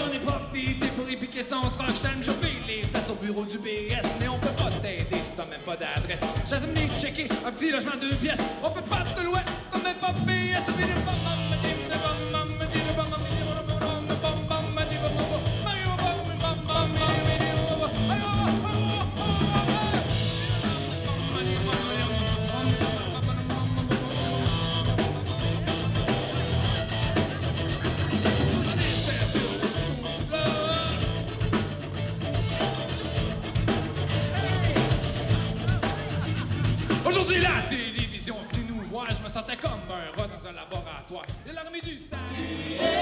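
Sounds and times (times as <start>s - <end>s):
bass guitar: 0.0s - 7.5s, 8.1s - 40.2s
man singing: 0.0s - 32.9s, 33.5s - 40.9s
drum kit: 0.0s - 43.0s
electric guitars: 8.1s - 37.8s.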